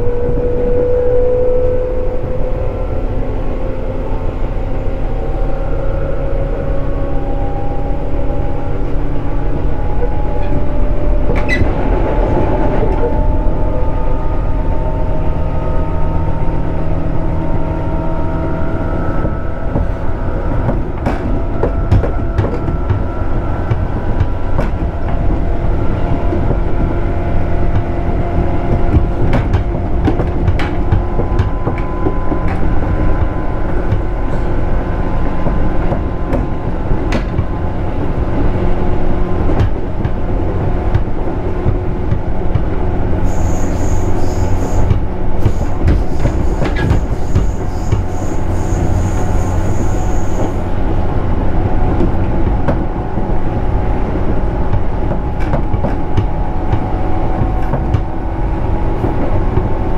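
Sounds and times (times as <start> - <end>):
train heavy rumble: 0.0 - 59.9
sharp clicks from rails: 19.1 - 34.6, 38.4 - 50.8.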